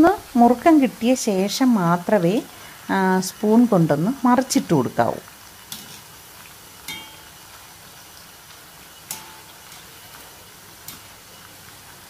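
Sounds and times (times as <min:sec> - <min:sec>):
oil sizzling: 0:00.0 - 0:12.0
metal utensils clinking on pan: 0:05.7 - 0:06.1, 0:06.8 - 0:07.5, 0:09.0 - 0:11.2.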